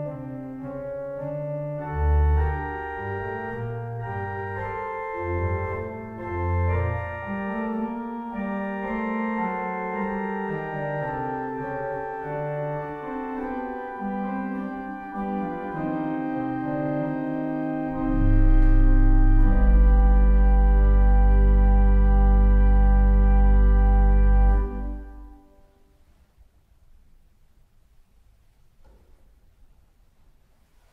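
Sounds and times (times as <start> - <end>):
pipe organ chords: 0.0 - 25.8
deep pedal bass note: 18.0 - 24.6.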